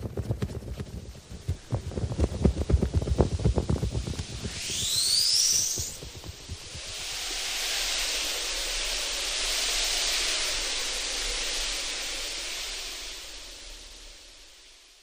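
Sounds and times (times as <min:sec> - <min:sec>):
soft low thumps: 0:00.0 - 0:04.5, 0:05.6 - 0:06.8
rushing hiss: 0:01.1 - 0:15.0.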